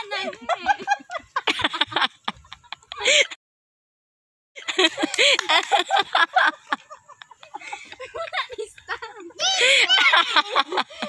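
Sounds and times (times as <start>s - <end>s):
women talking: 0.0s - 1.2s, 7.8s - 11.0s
women laughing: 0.0s - 3.4s, 4.6s - 11.0s.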